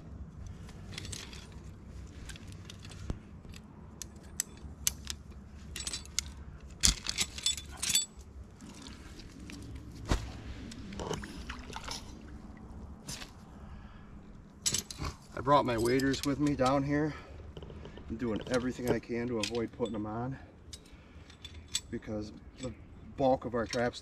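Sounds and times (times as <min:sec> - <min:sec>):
metal trap clanking: 0:04.2 - 0:08.2, 0:14.6 - 0:16.8.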